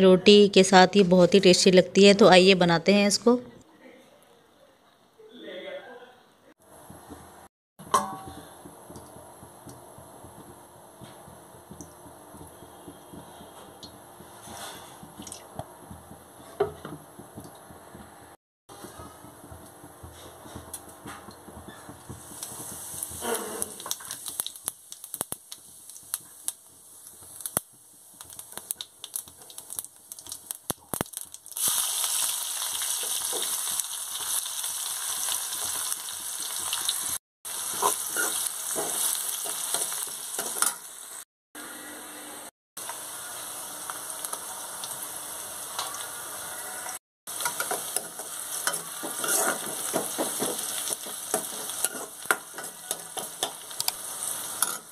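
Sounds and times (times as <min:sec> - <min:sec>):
onion and garlic frying sizzle: 0:06.6 - 0:41.3, 0:42.8 - 0:54.9
oil crackling in a pan: 0:07.8 - 0:17.8, 0:18.8 - 0:41.2, 0:42.8 - 0:54.9
steel spoon scraping a pan: 0:13.4 - 0:15.2, 0:22.6 - 0:24.0, 0:37.7 - 0:40.9, 0:46.5 - 0:54.9.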